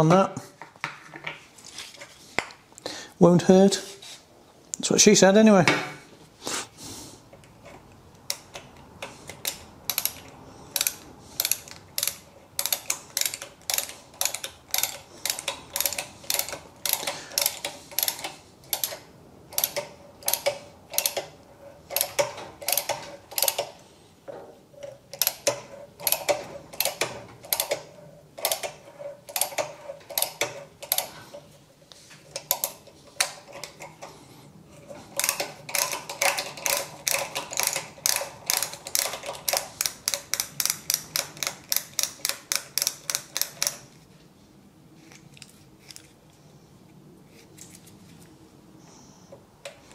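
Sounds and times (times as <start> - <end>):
ratcheting tap handle clicking: 35.2 - 43.8.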